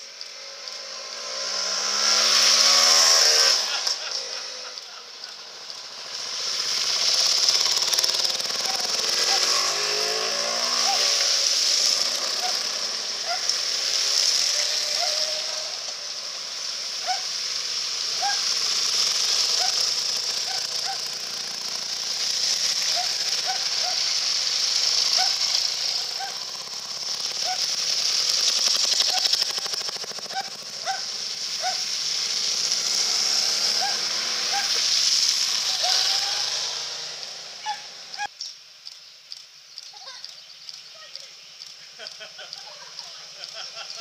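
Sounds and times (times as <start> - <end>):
motorcycle engines: 0.0 - 44.0
water splashing from motorcycles: 0.2 - 38.2.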